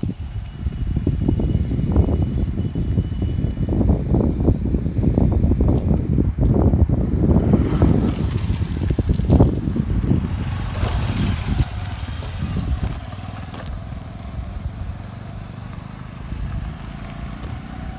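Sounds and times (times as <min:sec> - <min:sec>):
low rumble of moving vehicle: 0:00.0 - 0:17.9.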